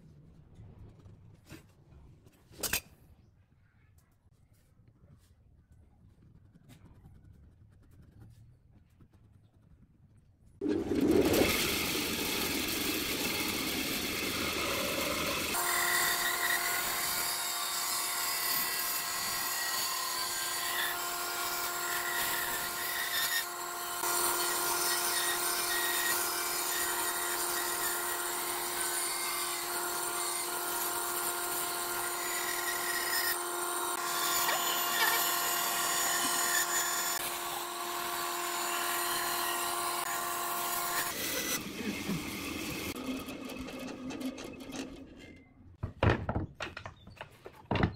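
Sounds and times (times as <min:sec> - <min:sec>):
band saw humming: 0:10.6 - 0:45.0
saw blade cutting wood: 0:10.6 - 0:45.4.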